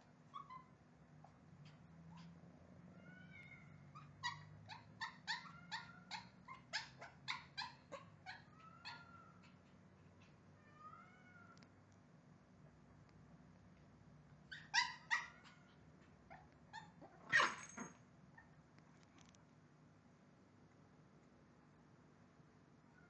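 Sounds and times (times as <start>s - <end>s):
small dogs yipping: 0.0s - 2.4s, 3.0s - 11.5s, 14.5s - 18.5s
dog whining: 0.3s - 2.4s, 3.0s - 11.6s, 14.5s - 18.5s.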